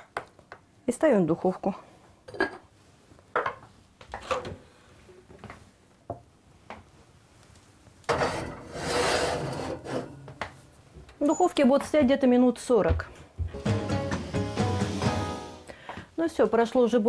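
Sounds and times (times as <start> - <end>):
pot scraping into oven: 8.1 - 10.4.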